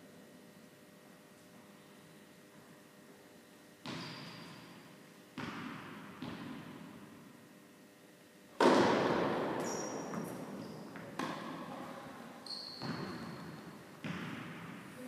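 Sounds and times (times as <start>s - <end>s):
tennis ball hits echoing: 8.6s - 11.7s
short high squeaks: 9.6s - 10.9s, 12.4s - 13.4s.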